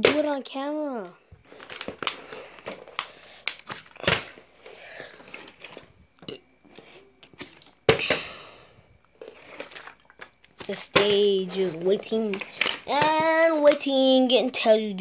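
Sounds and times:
plastic bottle crinkling: 1.4 - 8.2, 9.0 - 13.8.

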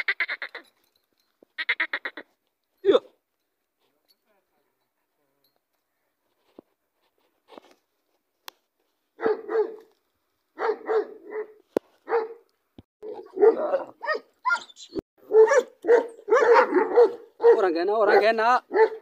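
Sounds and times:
dog barking: 9.2 - 9.9, 10.6 - 12.4, 13.0 - 19.0.

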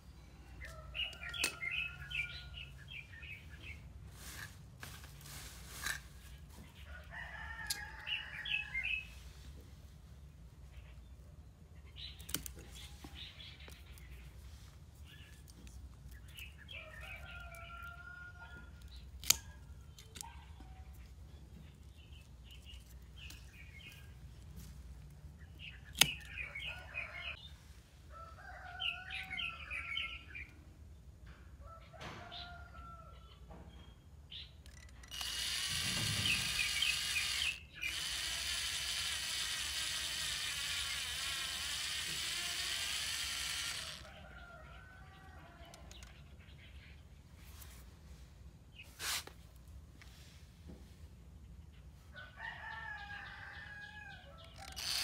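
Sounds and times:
birds chirping: 0.0 - 3.9
cordless drill running: 35.0 - 44.1, 54.6 - 55.0.

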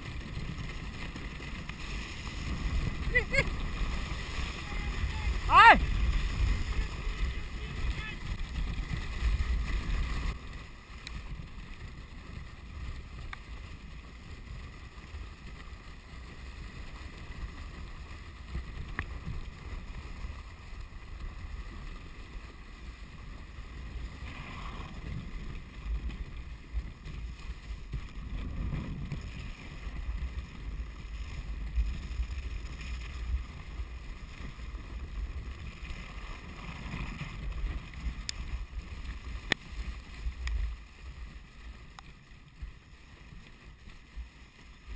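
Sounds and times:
wind buffeting microphone: 0.0 - 42.1
sled runners hissing on snow: 0.0 - 44.9.

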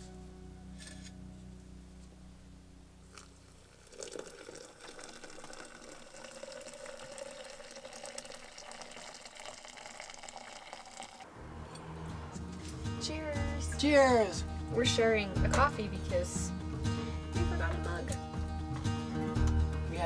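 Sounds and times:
water pouring into glass: 3.1 - 11.3.

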